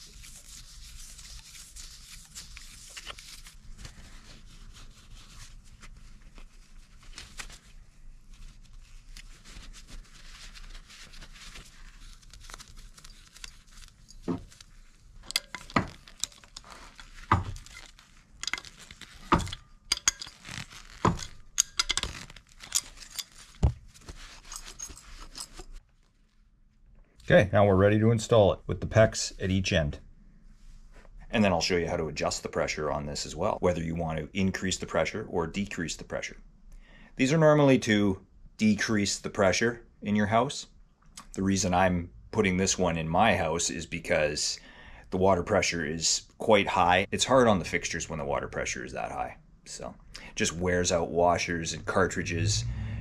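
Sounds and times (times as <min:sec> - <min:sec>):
thread tape crinkly hiss: 0:00.0 - 0:19.4.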